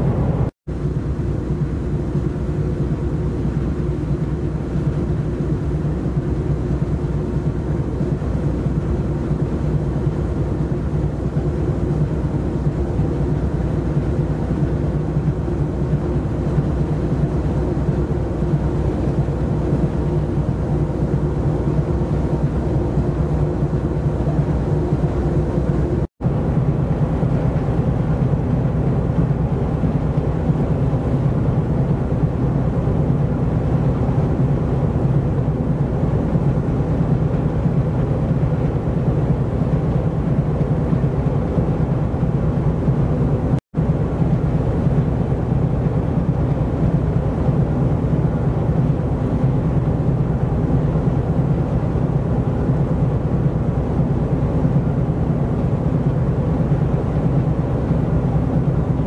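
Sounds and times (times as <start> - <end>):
ship engine drone: 0.0 - 59.0.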